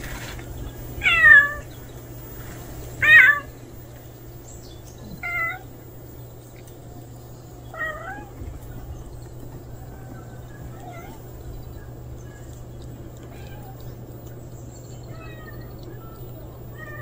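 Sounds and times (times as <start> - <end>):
cat meowing: 1.0 - 1.7, 3.0 - 3.5, 5.2 - 5.7, 7.7 - 8.4, 9.8 - 11.2, 13.2 - 13.9, 15.1 - 16.1, 16.7 - 17.0.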